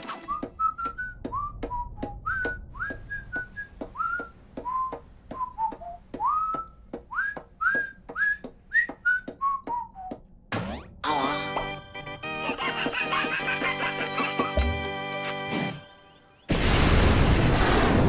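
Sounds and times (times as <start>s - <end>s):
whistled cartoon tune: 0.1s - 10.2s.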